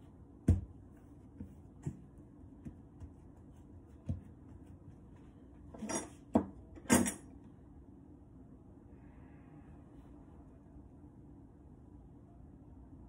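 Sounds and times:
hands rolling dough thud: 0.0 - 5.4.

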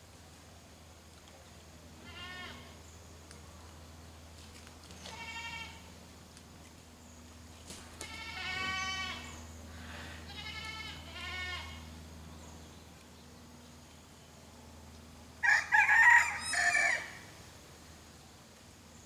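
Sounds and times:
goat bleating: 2.0 - 2.8, 5.0 - 5.9, 8.0 - 9.4, 10.1 - 11.9
rooster crowing: 15.4 - 17.3.

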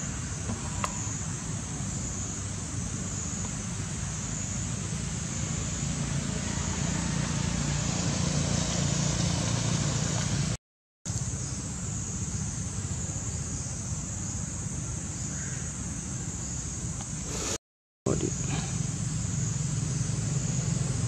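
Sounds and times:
steady high hiss: 0.0 - 6.6, 11.1 - 21.0
distant road traffic rumble: 0.0 - 21.0.

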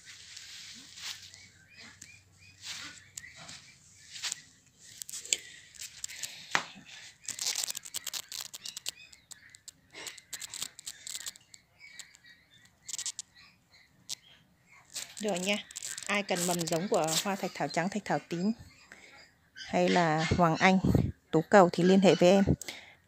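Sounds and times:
leaves rustling and crackling: 0.0 - 2.0, 2.6 - 12.2, 12.8 - 13.2, 14.8 - 17.8.

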